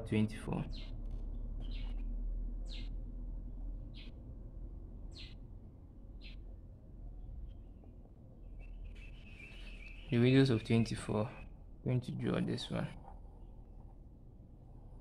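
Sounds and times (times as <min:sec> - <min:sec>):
bird chirps: 0:00.6 - 0:01.0, 0:01.6 - 0:03.0, 0:03.9 - 0:04.2, 0:05.1 - 0:05.4, 0:06.2 - 0:06.4, 0:07.4 - 0:11.6.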